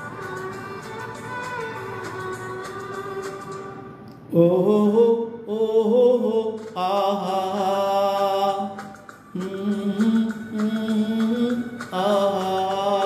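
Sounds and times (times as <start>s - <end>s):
karaoke backing track: 0.0s - 13.0s
man singing: 4.3s - 13.0s.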